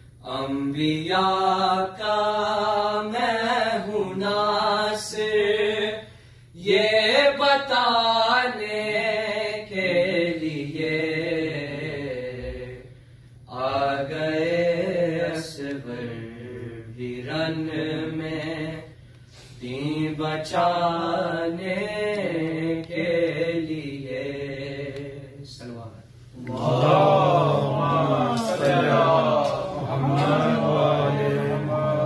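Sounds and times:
young male voices chanting: 0:26.4 - 0:32.0.

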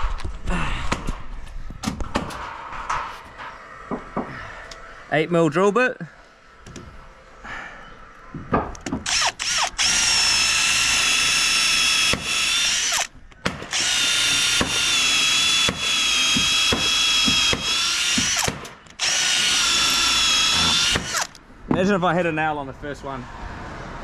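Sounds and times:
power drill whine: 0:09.0 - 0:13.1, 0:13.7 - 0:21.4.

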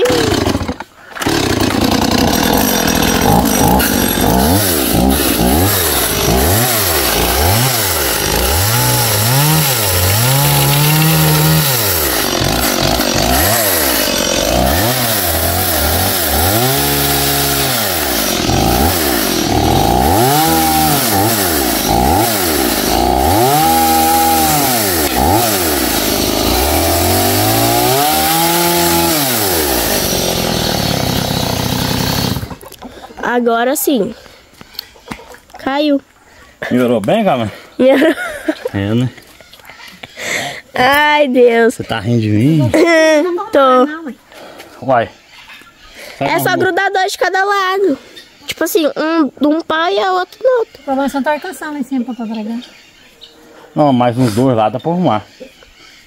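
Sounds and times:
chainsaw cutting wood: 0:00.0 - 0:32.8.

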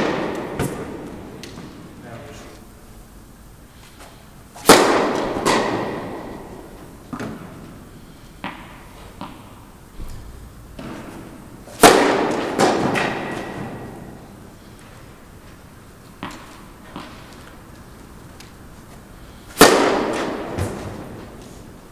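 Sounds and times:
tennis racket striking ball: 0:00.0 - 0:01.9, 0:04.6 - 0:07.8, 0:08.4 - 0:09.7, 0:10.8 - 0:14.4, 0:16.2 - 0:17.4, 0:19.5 - 0:21.5
quieter crack: 0:19.5 - 0:21.1.

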